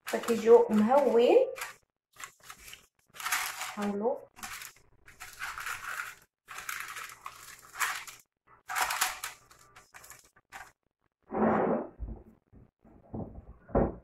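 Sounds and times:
parchment paper crinkling: 0.0 - 10.8.

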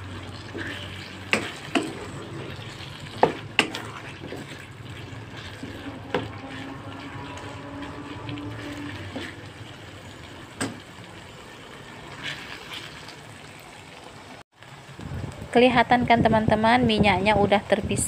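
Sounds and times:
spatula scraping a wok: 0.0 - 10.9, 12.0 - 13.2
sauce sizzling: 0.0 - 15.3.

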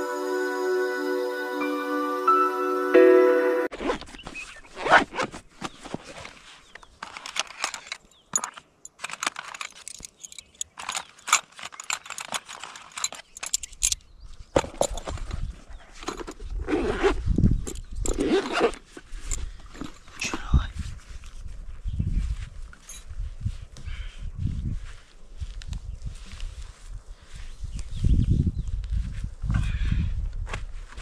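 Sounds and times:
metal tent pegs clinking: 7.0 - 20.5.

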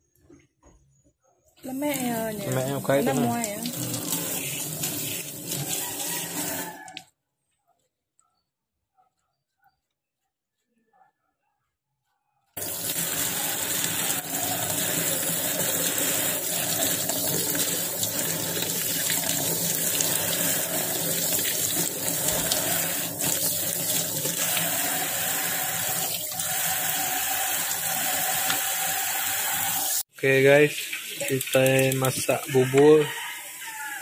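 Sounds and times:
tap water running into sink: 1.9 - 7.0, 12.6 - 34.0
water splashing over hands: 30.9 - 32.1.

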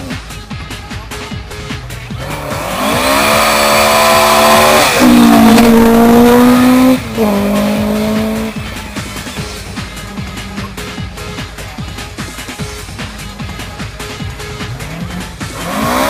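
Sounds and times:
rally car engine revving past: 2.2 - 8.7, 14.8 - 16.0.

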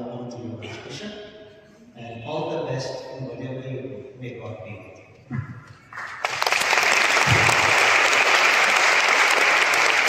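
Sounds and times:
audience applauding: 5.9 - 10.0.

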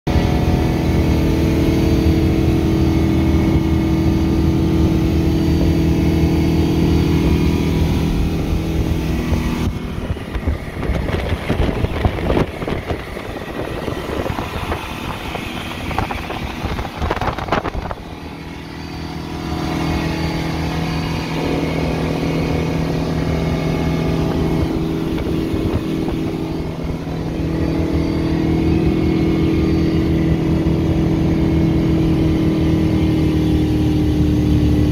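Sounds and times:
boat engine at high speed: 0.1 - 34.9
water churning: 0.1 - 34.9
wind rushing: 6.0 - 30.4.

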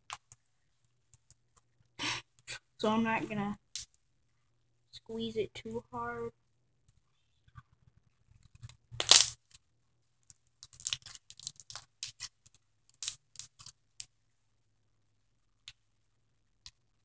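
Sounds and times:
slime crunching and crackling: 9.0 - 9.4, 10.6 - 12.3.

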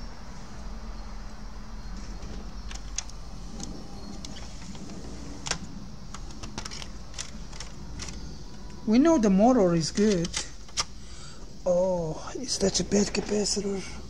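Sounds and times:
steady low hum: 0.0 - 14.0
small plastic clicks and knocks: 2.2 - 8.7.

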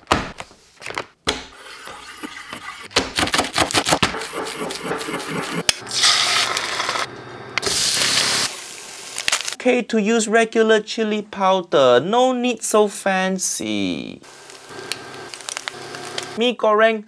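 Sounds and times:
knife chopping on wooden board: 2.9 - 5.5
egg sizzling in hot oil: 4.3 - 9.6, 14.3 - 16.4.

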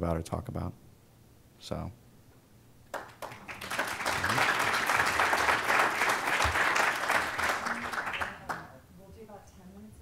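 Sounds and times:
audience applauding: 2.9 - 8.7.

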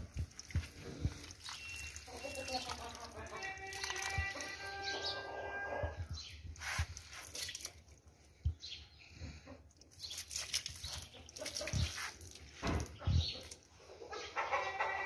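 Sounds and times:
water splashing onto soil: 0.0 - 4.7, 6.5 - 8.1, 9.8 - 13.6.

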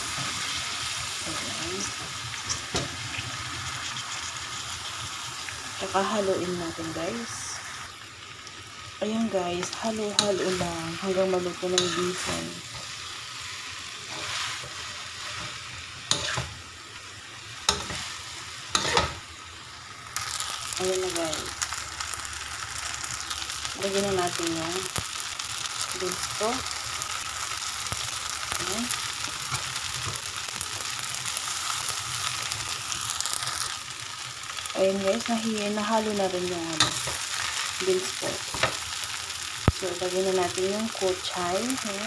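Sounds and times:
noodles sizzling in a wok: 0.0 - 42.0
metal spatula scraping and tapping: 11.8 - 12.3, 15.4 - 16.5, 17.7 - 18.0, 18.7 - 19.2.

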